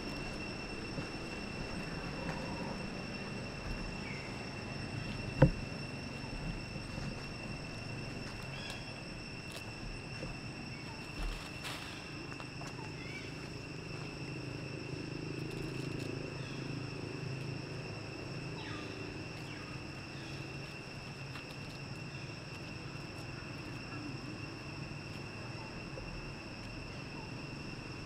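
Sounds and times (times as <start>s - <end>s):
faint rustles: 0.0s - 14.1s
insect buzzing drone: 0.0s - 28.0s
low background hum: 0.0s - 28.0s.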